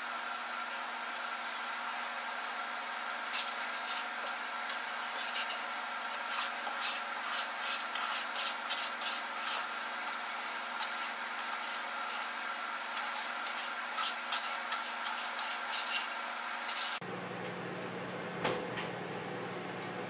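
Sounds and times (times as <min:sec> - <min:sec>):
steady electrical hum: 0:00.0 - 0:19.8
spatula scraping batter in bowl: 0:03.0 - 0:17.0.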